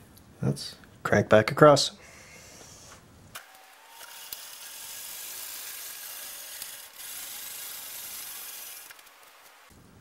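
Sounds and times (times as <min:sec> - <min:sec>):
machine table rasping rush: 0:04.6 - 0:09.3.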